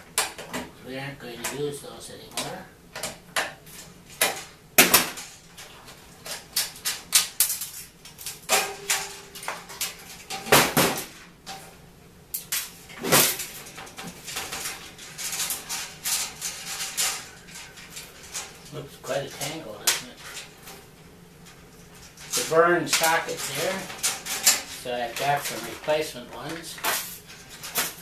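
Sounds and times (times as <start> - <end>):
clunks and rattles on sheet metal: 8.4 - 11.6, 12.9 - 18.7, 21.9 - 25.6.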